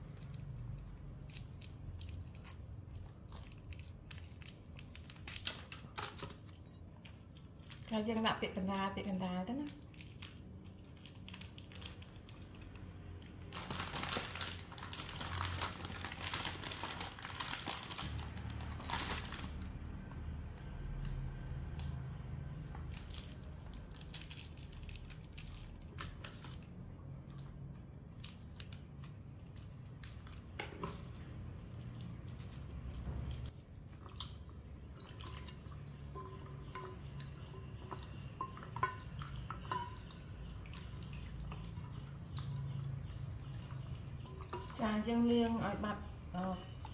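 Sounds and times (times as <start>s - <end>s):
plastic packet crinkling: 9.2s - 19.7s
water sloshing: 32.8s - 46.9s.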